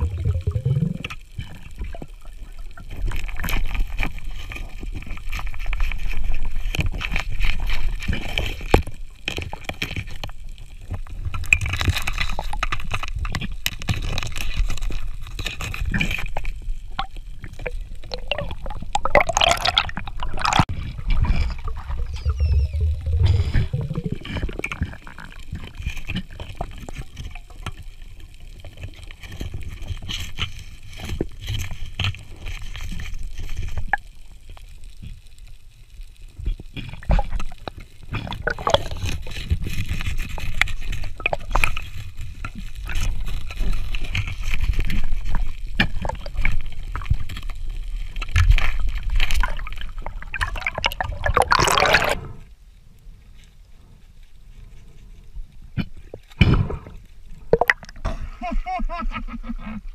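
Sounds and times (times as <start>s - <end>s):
low underwater rumble: 0.0s - 3.4s, 16.6s - 25.8s
water gurgling and sloshing: 0.0s - 52.7s, 54.5s - 58.2s.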